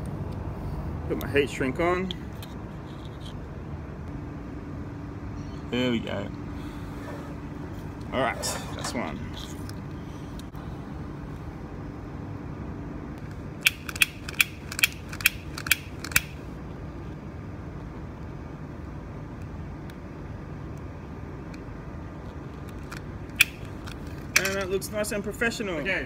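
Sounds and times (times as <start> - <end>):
steady low background noise: 0.0 - 26.0
torch lighter igniter clicking: 13.6 - 16.4, 23.3 - 24.6.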